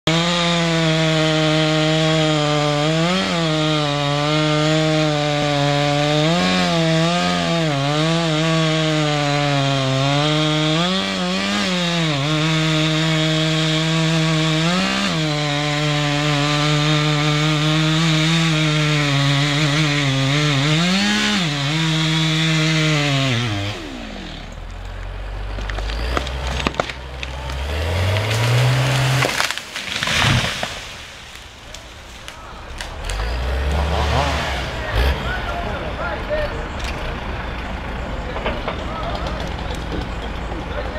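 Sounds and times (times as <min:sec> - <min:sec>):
wood cracking: 0:00.1 - 0:35.4, 0:38.3 - 0:40.9
chainsaw cutting tree trunk: 0:00.1 - 0:35.5
tree crashing to ground: 0:24.3 - 0:35.1.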